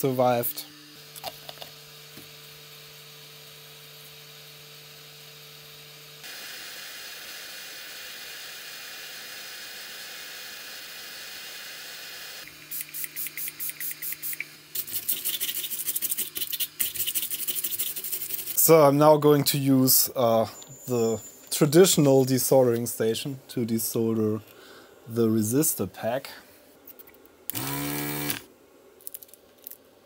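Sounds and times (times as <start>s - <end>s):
hot air gun hissing: 6.2s - 18.6s.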